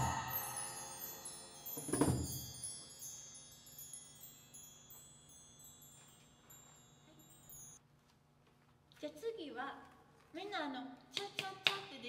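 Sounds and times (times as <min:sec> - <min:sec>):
bar chimes tinkling: 0:00.0 - 0:07.8.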